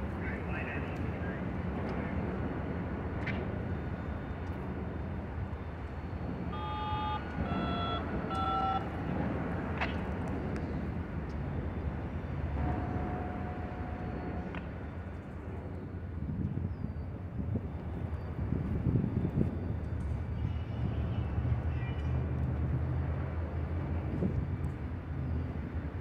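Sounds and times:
diesel locomotive rumble: 0.0s - 26.0s
short tones at different pitches: 6.5s - 8.9s.

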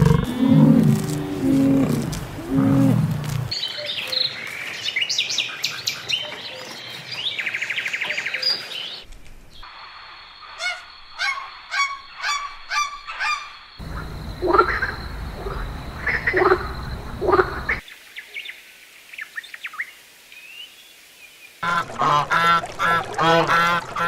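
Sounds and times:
low animal grunting calls: 0.0s - 3.5s
sharp animal calls: 0.0s - 3.5s.

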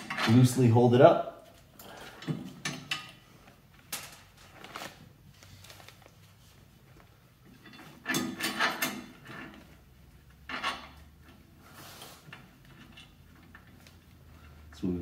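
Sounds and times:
metal parts clattering and scraping: 7.5s - 9.7s, 10.4s - 11.2s.

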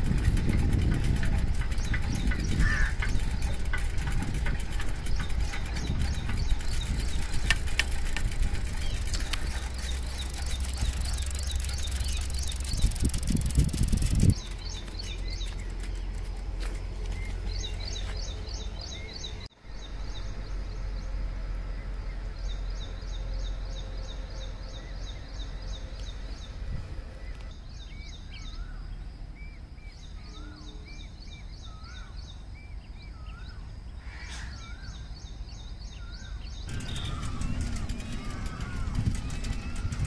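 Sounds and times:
low background rumble: 0.0s - 40.0s
rapid high bird chirps: 8.6s - 16.2s, 36.0s - 40.0s
lower bird call: 17.1s - 40.0s.

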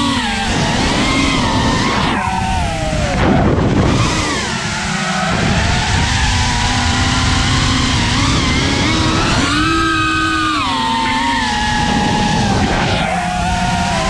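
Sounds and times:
drone motors whining: 0.0s - 14.0s
wind rumble on microphone: 0.0s - 14.0s.

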